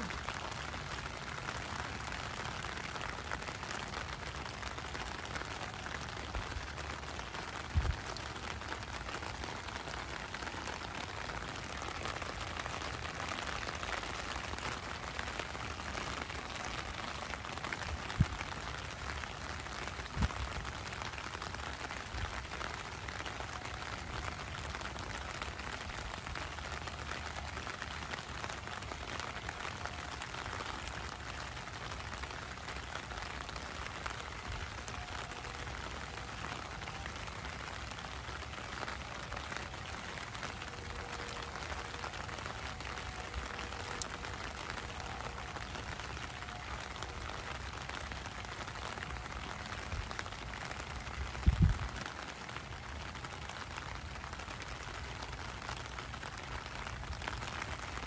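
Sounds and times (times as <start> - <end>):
heavy rain on street: 0.0 - 58.0.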